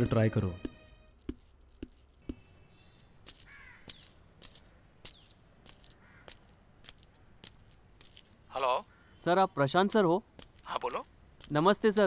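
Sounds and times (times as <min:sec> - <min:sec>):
footstep on hard floor: 0:00.0 - 0:02.5
faint birds chirping: 0:00.0 - 0:12.0.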